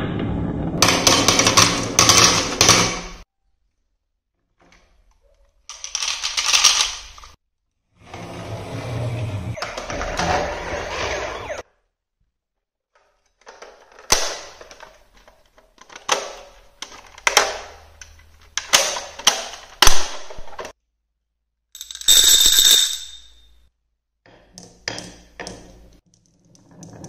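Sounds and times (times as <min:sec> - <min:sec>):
marbles clicking on wooden track: 0:05.7 - 0:07.4
plastic toy clicking and knocking: 0:05.7 - 0:07.4.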